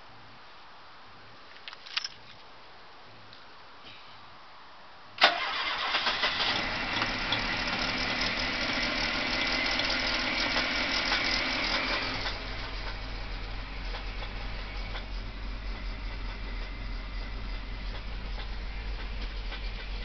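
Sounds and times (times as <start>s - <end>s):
car engine starting and idling: 5.2s - 20.0s.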